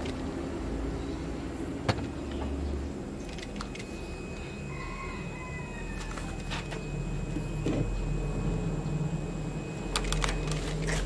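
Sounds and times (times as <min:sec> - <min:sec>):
steady low rumble: 0:06.6 - 0:11.0.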